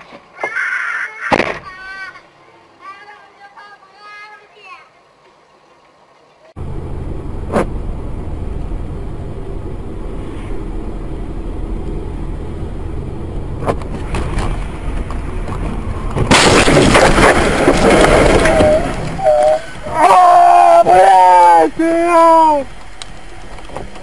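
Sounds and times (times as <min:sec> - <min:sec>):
road and engine rumble: 0:01.7 - 0:24.0
loud collision noise: 0:16.2 - 0:19.4.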